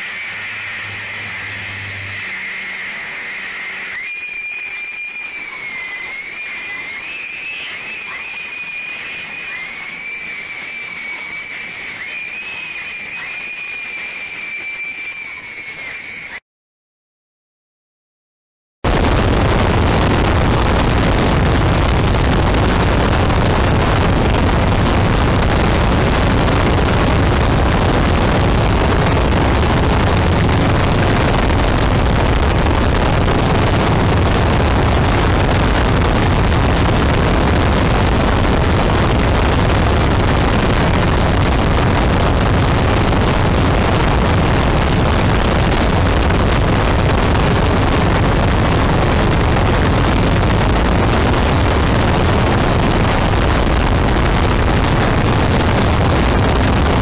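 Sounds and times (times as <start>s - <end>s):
steady rushing noise: 0.0s - 4.1s, 18.9s - 57.0s.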